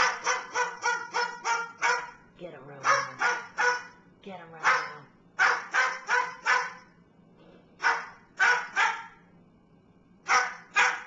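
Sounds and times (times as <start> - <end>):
cockatoo mimicking dog barks: 0.0 - 2.2, 2.8 - 4.0, 4.6 - 6.9, 7.8 - 9.2, 10.3 - 11.0.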